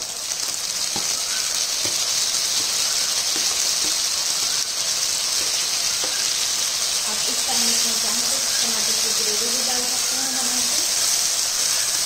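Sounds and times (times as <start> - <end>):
frying sizzle: 0.0 - 12.0.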